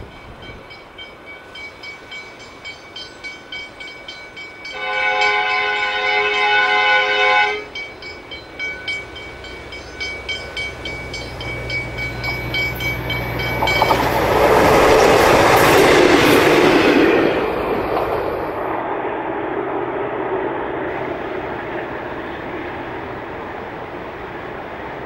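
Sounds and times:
train passing rush: 0.0 - 25.0
train horn: 4.7 - 7.9
wheels clicking over rail joints: 7.8 - 18.7.

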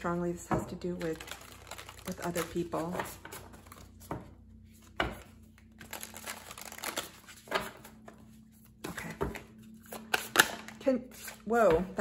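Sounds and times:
cards being shuffled: 4.8 - 11.9.

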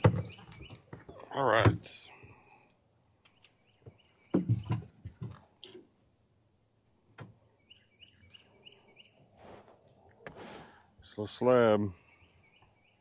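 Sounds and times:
bird chirping: 0.0 - 1.4, 3.2 - 5.1, 7.4 - 9.3, 12.0 - 13.0.

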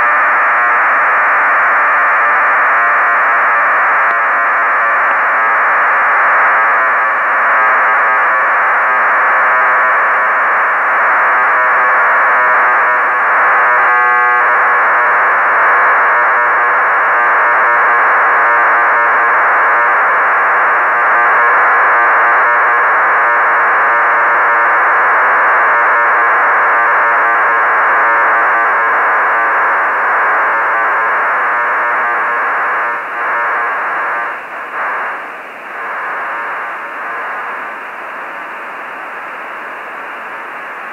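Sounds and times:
raspy buzzing data signal: 0.0 - 40.9
radio hiss: 21.7 - 40.9.

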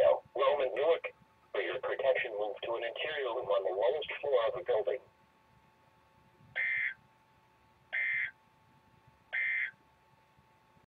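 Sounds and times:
digital data tone bursts: 6.6 - 7.0, 8.0 - 8.4, 9.4 - 9.8.

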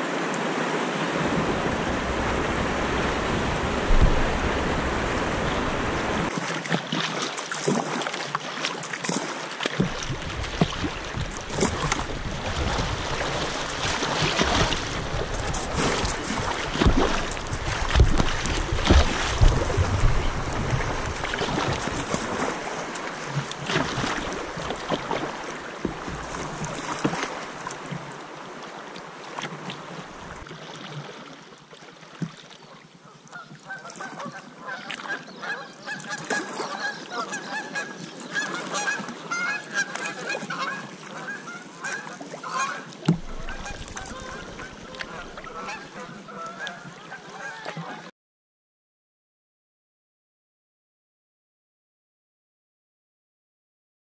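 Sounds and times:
creek water rushing: 0.0 - 31.3, 35.8 - 47.6.

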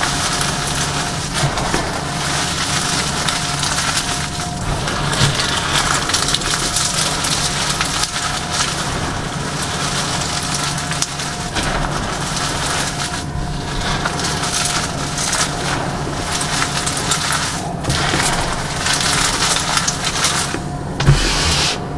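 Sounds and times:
chalk crunching by hand: 19.8 - 21.9.

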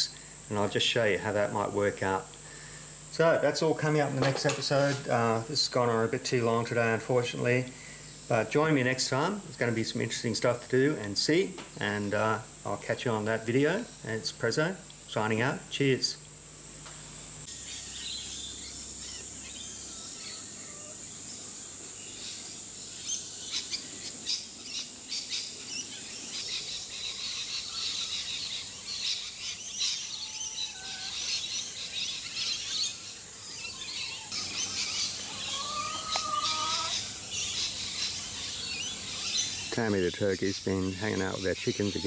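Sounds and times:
insects droning: 0.0 - 42.0
birds chirping: 17.4 - 42.0.

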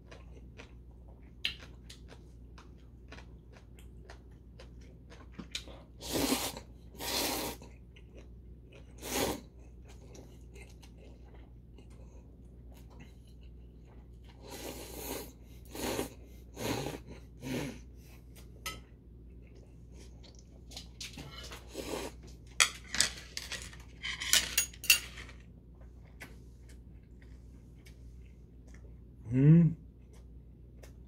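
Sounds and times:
chewing: 0.0 - 6.0, 7.5 - 14.8, 25.8 - 29.1, 29.9 - 31.0.

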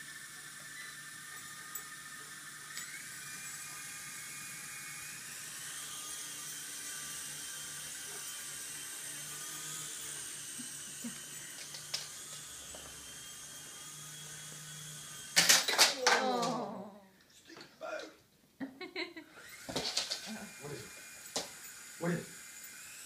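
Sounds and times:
toy helicopter motors whining: 0.0 - 16.9, 19.3 - 23.0.

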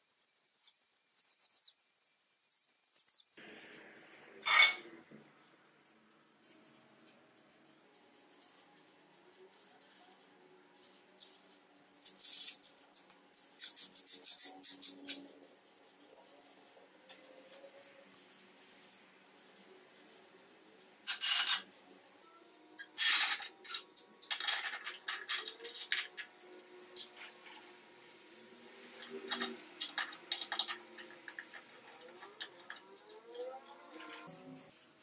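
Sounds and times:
steel clamp parts clinking: 21.1 - 21.7, 22.9 - 27.6, 28.9 - 33.2.

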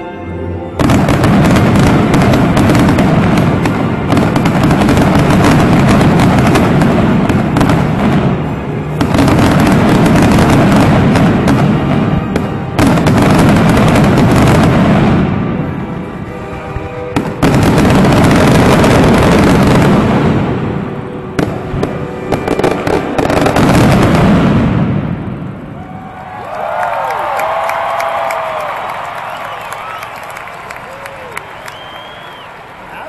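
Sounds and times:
music playing: 0.0 - 25.6
fireworks bangs and crackles: 0.8 - 26.1.

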